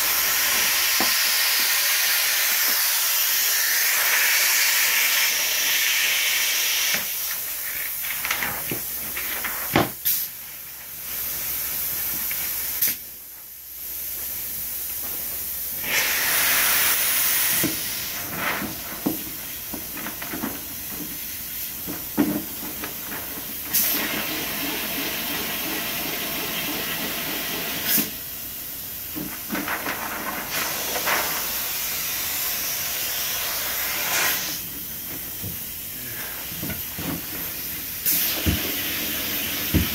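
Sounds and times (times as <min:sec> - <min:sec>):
spray foam gun hissing: 0:00.0 - 0:07.6, 0:15.8 - 0:18.2, 0:30.6 - 0:34.7.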